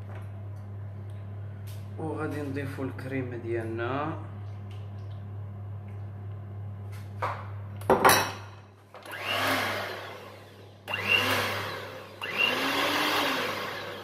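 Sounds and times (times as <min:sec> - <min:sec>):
electric hand mixer beating: 0:09.0 - 0:14.0.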